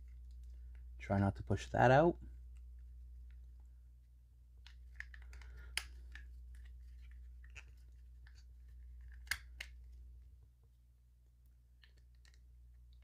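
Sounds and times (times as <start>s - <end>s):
plastic pieces clicking and scraping: 4.6s - 10.0s, 11.8s - 13.0s.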